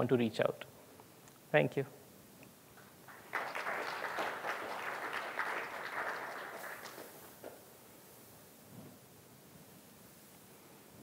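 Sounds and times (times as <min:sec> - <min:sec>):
audience applauding: 0:03.0 - 0:07.6.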